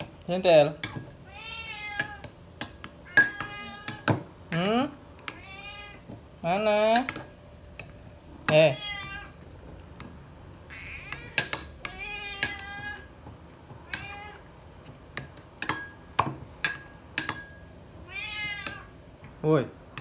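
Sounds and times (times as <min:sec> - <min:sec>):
cats meowing: 0:01.1 - 0:02.4, 0:03.0 - 0:04.2, 0:05.2 - 0:06.2, 0:08.5 - 0:09.7, 0:10.6 - 0:14.8, 0:18.0 - 0:19.0.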